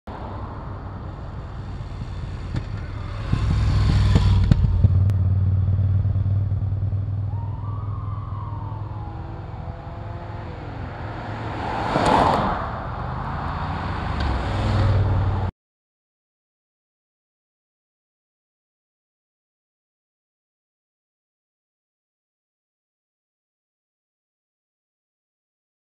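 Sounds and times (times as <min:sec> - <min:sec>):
vehicle tyre and wind rush: 0:00.1 - 0:15.5
motorcycle engine passing: 0:00.3 - 0:15.5.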